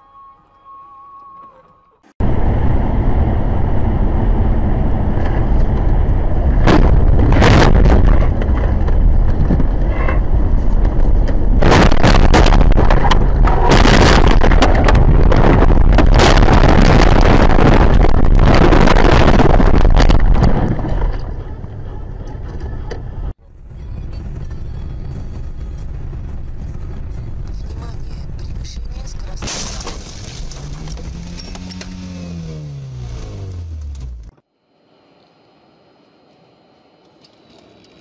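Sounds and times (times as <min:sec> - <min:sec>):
wind buffeting microphone: 0:02.2 - 0:21.8.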